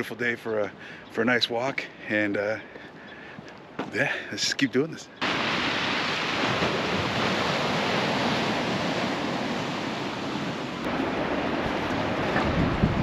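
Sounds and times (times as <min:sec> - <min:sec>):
ocean surf on rocks: 0:05.2 - 0:13.0
wind rumbling on microphone: 0:05.3 - 0:13.0.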